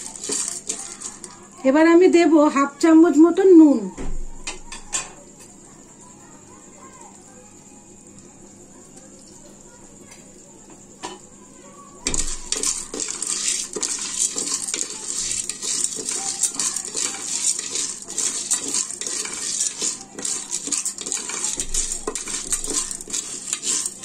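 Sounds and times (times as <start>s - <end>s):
popcorn kernels rattling in pot: 0.0s - 2.2s, 11.9s - 24.0s.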